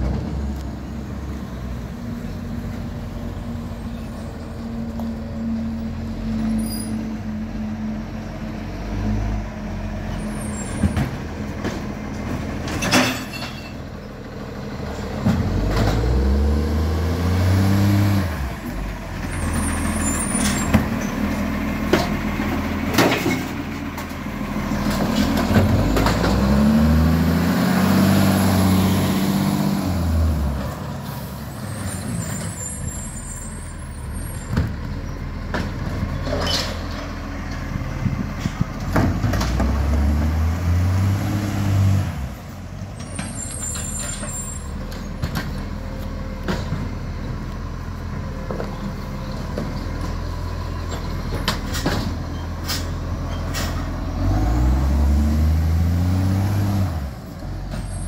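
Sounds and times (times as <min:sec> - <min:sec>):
diesel truck engine revving: 0:14.2 - 0:58.0.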